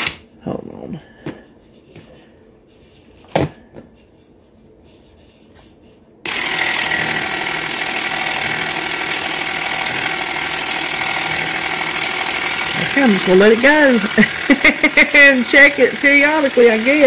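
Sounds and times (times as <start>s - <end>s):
motor running with rattling whir: 6.3s - 17.0s.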